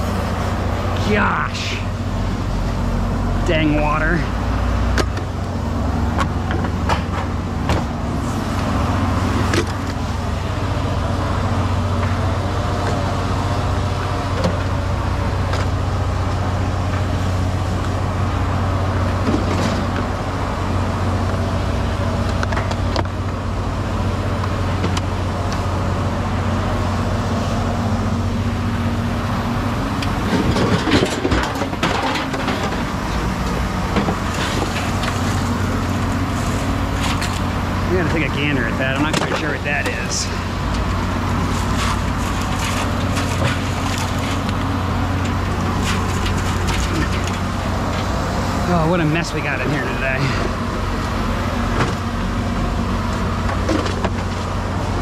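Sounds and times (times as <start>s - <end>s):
engine idling: 0.0s - 55.0s
knocks and clatter: 6.1s - 7.9s, 30.0s - 35.2s.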